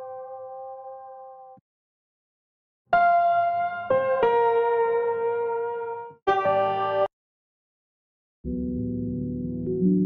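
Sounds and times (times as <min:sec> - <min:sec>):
piano music: 0:03.0 - 0:07.1, 0:08.5 - 0:10.0.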